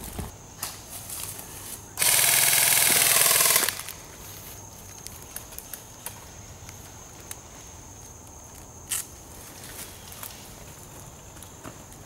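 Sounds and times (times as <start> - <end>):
airsoft gun full-auto buzz: 2.0 - 4.0.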